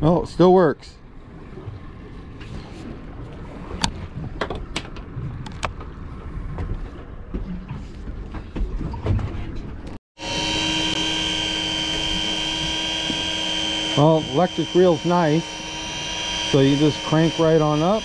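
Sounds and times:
wind and water rumble: 0.0 - 10.0
electric fishing reel whine: 10.2 - 18.0.

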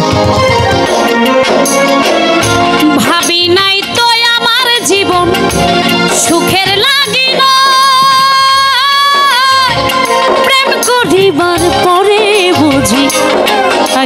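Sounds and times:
keyboard accompaniment: 0.0 - 14.0
woman singing through pa: 6.2 - 14.0.

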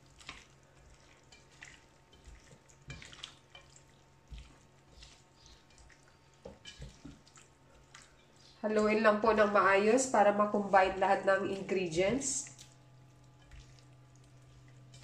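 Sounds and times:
spatula stirring wet food: 0.0 - 15.0
spatula tapping pan: 1.2 - 7.2.

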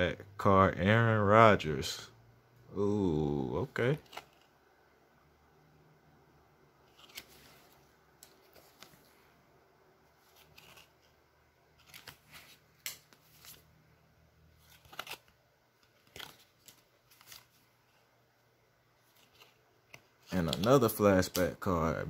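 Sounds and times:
trading cards rustling and snapping: 3.9 - 4.5, 6.8 - 9.2, 10.2 - 11.2, 11.8 - 13.7, 14.5 - 17.7, 19.0 - 21.6.

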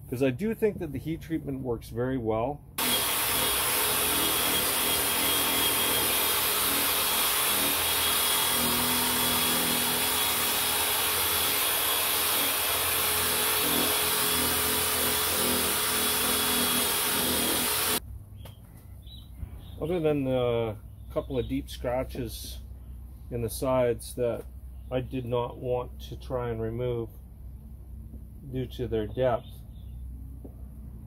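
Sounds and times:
electric drill motor whine: 2.8 - 18.0.

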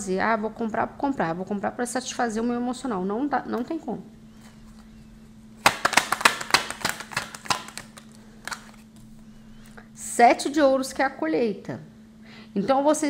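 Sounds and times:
card taps: 5.6 - 9.2
cards being shuffled: 5.6 - 9.8.

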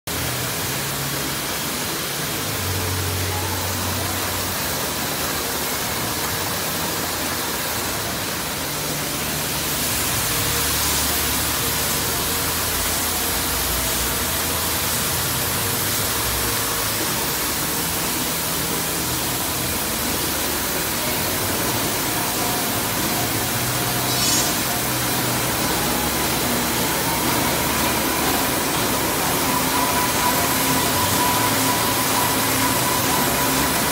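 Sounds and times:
machine rollers rushing noise: 14.8 - 33.9.

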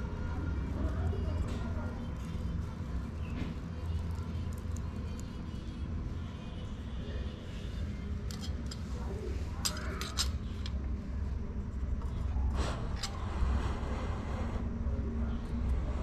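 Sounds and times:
low background rumble: 0.0 - 16.0
utensils clinking on steel: 8.3 - 8.9, 9.6 - 10.8.

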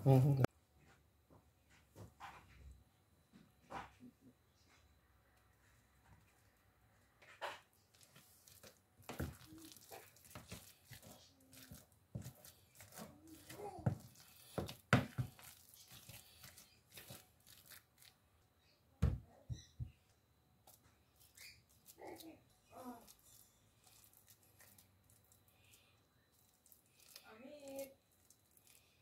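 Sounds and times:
wooden spoon scraping a bowl: 9.1 - 17.3.

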